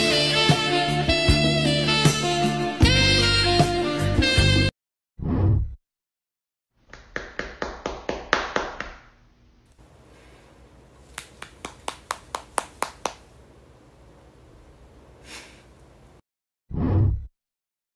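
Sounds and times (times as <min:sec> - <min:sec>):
sharp quick hand taps: 0:11.1 - 0:13.3.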